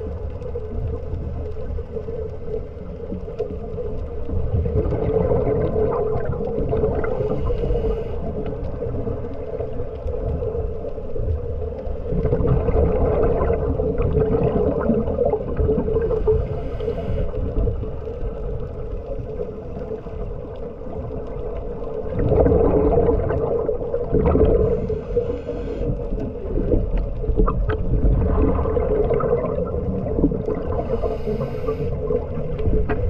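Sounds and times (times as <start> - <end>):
bubbles gurgling: 0.0 - 7.6, 8.3 - 16.7, 17.4 - 33.0
regulator breathing underwater: 7.0 - 8.6, 16.1 - 17.6, 24.4 - 26.2, 30.6 - 32.6.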